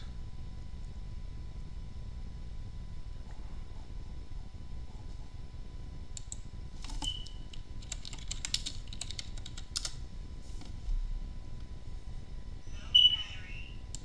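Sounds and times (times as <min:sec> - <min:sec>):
keyboard typing clicks: 0:06.2 - 0:10.0.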